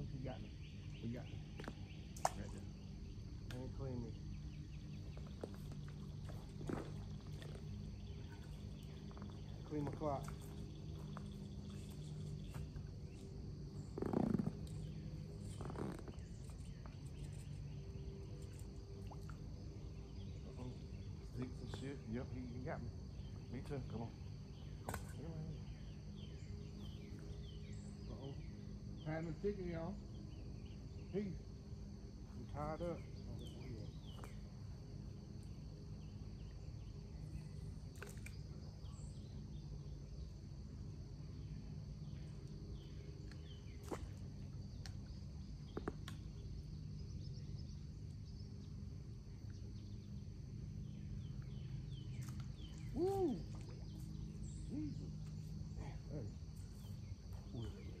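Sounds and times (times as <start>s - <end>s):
crickets chirping: 0.0s - 58.0s
high insect drone: 0.0s - 58.0s
bird chirps: 50.8s - 58.0s.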